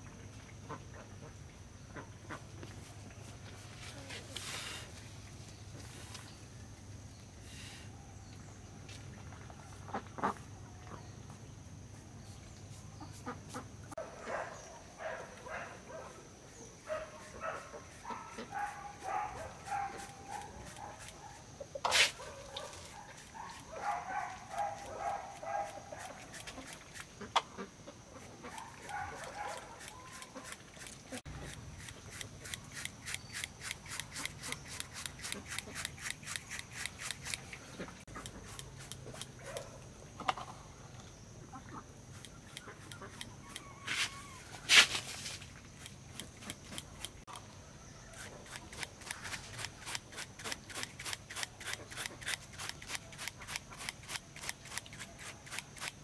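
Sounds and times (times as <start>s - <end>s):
chickens clucking: 26.0s - 29.4s, 41.4s - 44.5s
paintbrush scrubbing concrete: 28.2s - 39.6s.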